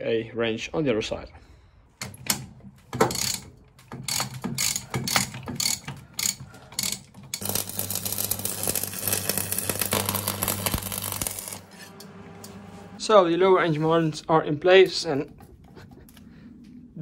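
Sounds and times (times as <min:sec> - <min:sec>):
ratchet wrench clicking: 0:03.0 - 0:11.6
welding arc crackling and humming: 0:07.4 - 0:12.9.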